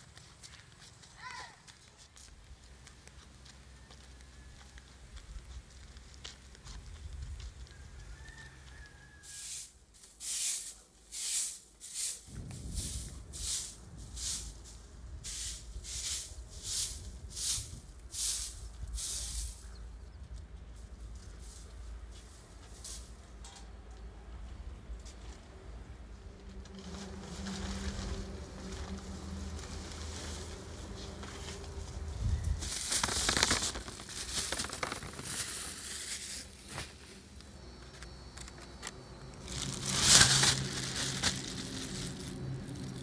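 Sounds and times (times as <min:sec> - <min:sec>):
broom sweeping earth: 0:09.2 - 0:20.0, 0:20.7 - 0:23.2, 0:26.7 - 0:37.4, 0:39.4 - 0:43.0
plastic bag crinkling: 0:32.5 - 0:36.8, 0:39.3 - 0:43.0.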